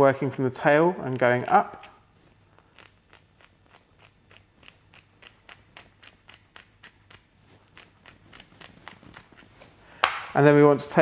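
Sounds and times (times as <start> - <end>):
scissors snipping fish: 0.7 - 2.0.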